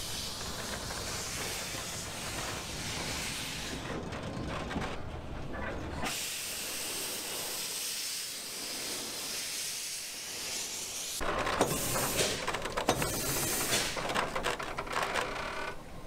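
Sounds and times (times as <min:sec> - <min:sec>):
steam locomotive hissing: 0:00.0 - 0:04.0, 0:06.0 - 0:14.0
metallic clanks and knocks: 0:11.2 - 0:15.3.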